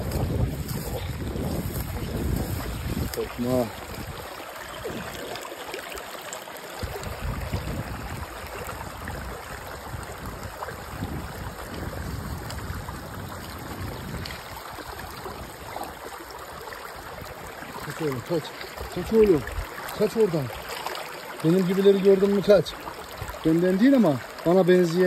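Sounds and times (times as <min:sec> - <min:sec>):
low rumbles: 0:00.0 - 0:04.2
stream rushing over rocks: 0:00.0 - 0:25.0.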